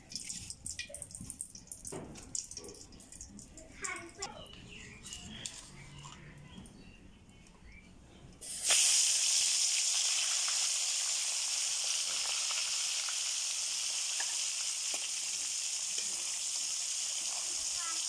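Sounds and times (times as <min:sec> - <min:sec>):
fish sizzling in hot oil: 0:08.4 - 0:18.0.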